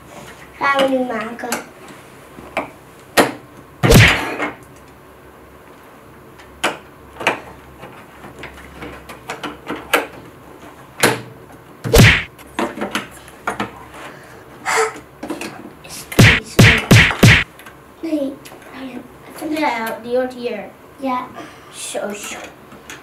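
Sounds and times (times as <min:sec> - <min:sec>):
heavy thuds: 0:03.9 - 0:04.3, 0:11.9 - 0:12.3, 0:16.2 - 0:17.4.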